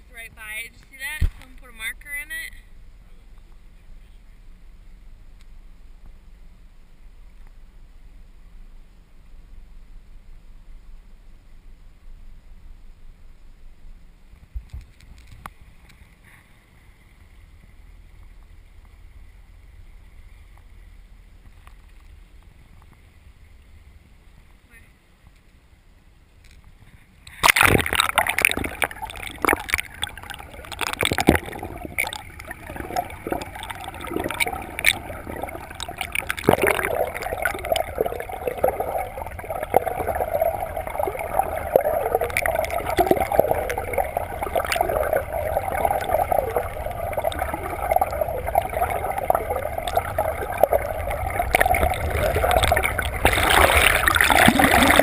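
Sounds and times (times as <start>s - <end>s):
muffled underwater gurgling: 27.4s - 55.0s.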